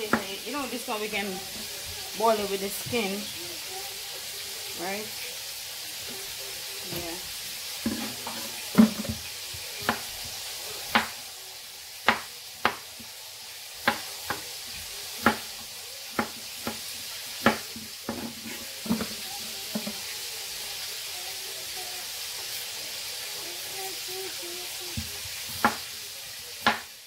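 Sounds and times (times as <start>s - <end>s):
frying sizzle: 0.0s - 27.0s
knife chopping on cutting board: 7.8s - 9.2s, 9.8s - 10.3s, 10.9s - 11.2s, 12.0s - 13.1s, 13.8s - 20.0s, 24.9s - 25.9s, 26.6s - 26.9s.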